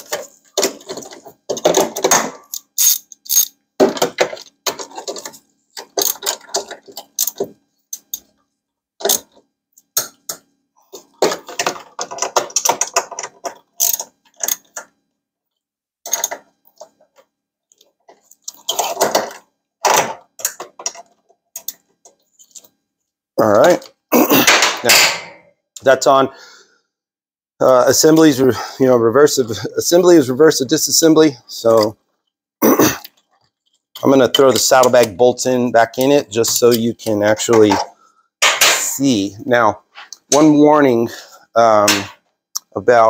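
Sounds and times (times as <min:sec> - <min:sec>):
hand ratchet clicking: 0:02.5 - 0:03.6, 0:13.8 - 0:14.7.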